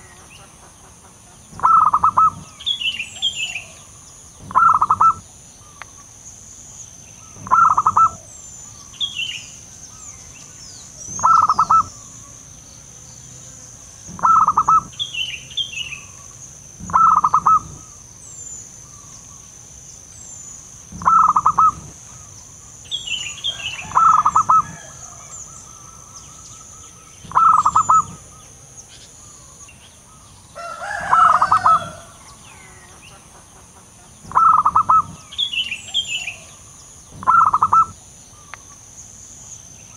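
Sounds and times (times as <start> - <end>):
small birds chirping: 0.0 - 39.9
dove stuttering coo: 1.6 - 2.6, 4.4 - 5.2, 7.4 - 8.3, 11.1 - 12.0, 14.1 - 15.0, 16.8 - 17.9, 20.9 - 22.2, 23.8 - 25.0, 27.2 - 28.3, 34.2 - 35.3, 37.2 - 38.0.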